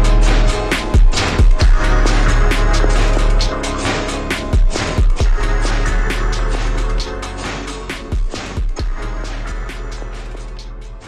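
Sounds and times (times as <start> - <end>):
kick drum hits: 1.0 - 1.8.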